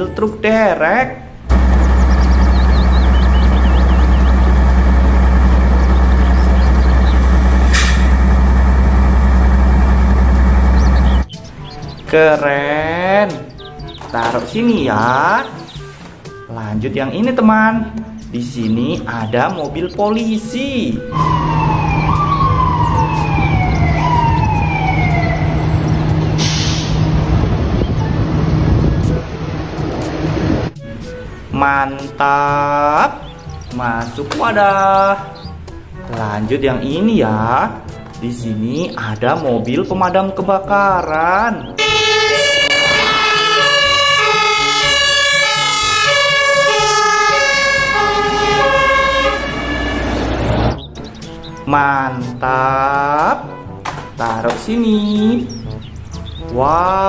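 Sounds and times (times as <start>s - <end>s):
street traffic drone: 0.0s - 12.4s, 17.2s - 52.4s, 53.4s - 57.0s
emergency vehicle siren: 1.5s - 11.4s, 20.9s - 26.8s, 41.8s - 50.8s
short hiss: 7.7s - 8.1s, 26.4s - 27.0s.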